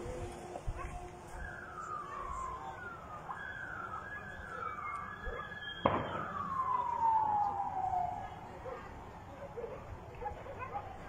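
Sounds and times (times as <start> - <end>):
siren wail sliding down: 0.0 - 8.3
firework bang: 5.8 - 6.4.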